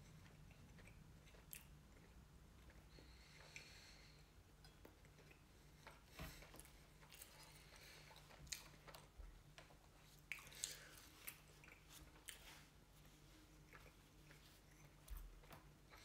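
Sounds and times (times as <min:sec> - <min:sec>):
faint low hum: 0:00.0 - 0:16.0
person chewing: 0:00.1 - 0:03.9, 0:04.6 - 0:16.0.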